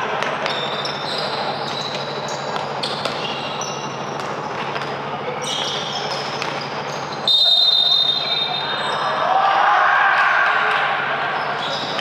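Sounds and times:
shoes squeaking on floor: 0:00.1 - 0:09.2, 0:11.3 - 0:12.0
basketball bouncing: 0:01.7 - 0:05.0.

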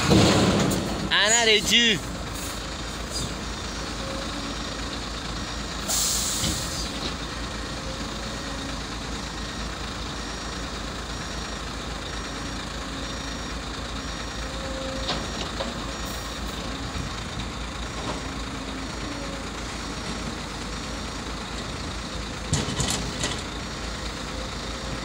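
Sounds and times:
diesel truck engine running: 0:00.0 - 0:25.0
air brake hiss: 0:05.8 - 0:06.9.

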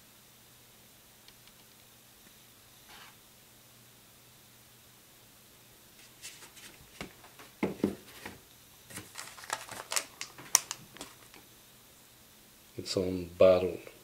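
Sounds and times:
record sleeve rustling and scraping: 0:02.9 - 0:03.2, 0:06.0 - 0:11.4.

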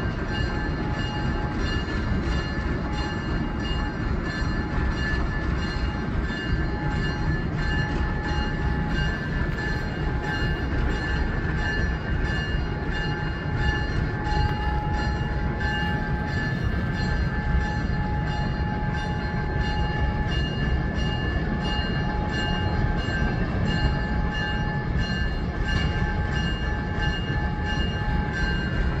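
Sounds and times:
diesel locomotive idling rumble: 0:00.0 - 0:29.0
pulsing high whine: 0:00.0 - 0:29.0.

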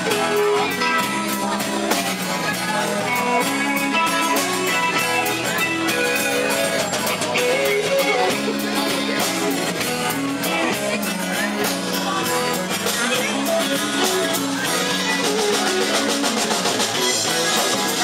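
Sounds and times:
guitar melody: 0:00.0 - 0:18.0
steady drum beat: 0:00.0 - 0:18.0.

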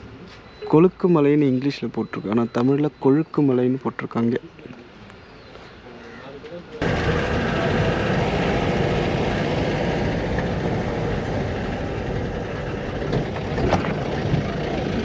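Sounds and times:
road noise: 0:00.0 - 0:15.0
car engine running: 0:06.8 - 0:15.0.

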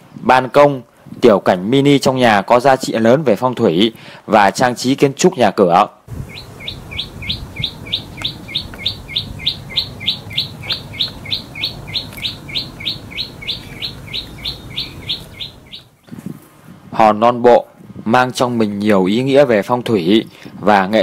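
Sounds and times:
bird chirping: 0:06.1 - 0:16.2.

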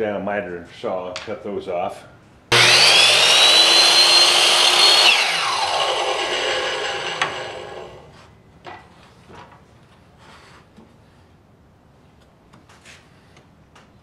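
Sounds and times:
miter saw whining: 0:02.5 - 0:08.1
saw winding down: 0:02.5 - 0:08.1.

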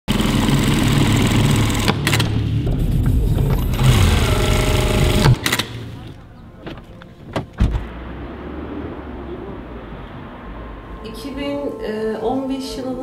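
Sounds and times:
sewing machine whine: 0:00.1 - 0:02.4, 0:03.6 - 0:05.6
low steady hum: 0:02.3 - 0:13.0
short clicks: 0:05.4 - 0:05.8.

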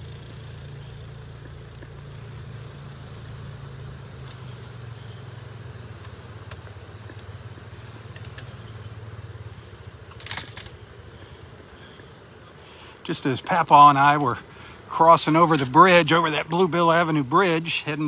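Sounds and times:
light clicks: 0:08.0 - 0:08.8.

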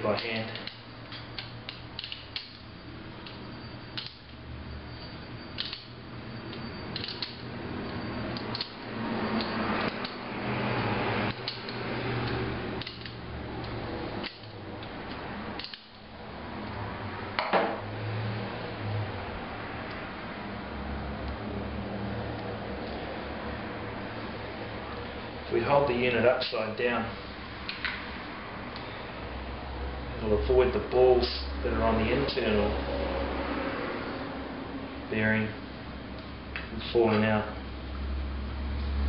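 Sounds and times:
metallic clicks and rubbing: 0:05.5 - 0:08.8.

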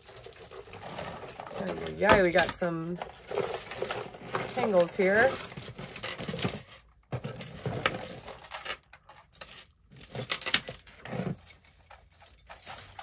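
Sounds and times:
metal chains jingling: 0:12.2 - 0:13.0.

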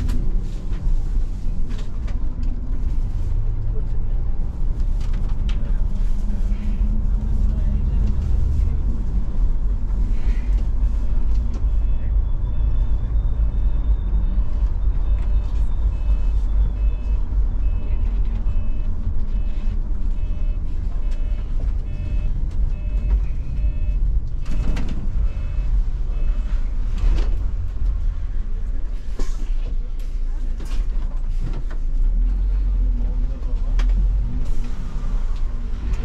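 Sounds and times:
diesel engine rumble: 0:00.0 - 0:36.0
reversing alarm beeping: 0:15.0 - 0:26.6.

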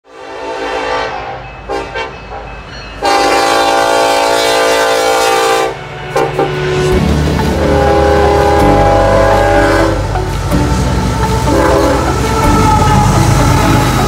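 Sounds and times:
locomotive air horn blasts: 0:00.1 - 0:02.1, 0:03.0 - 0:14.0
passing train rumble: 0:00.1 - 0:14.0.

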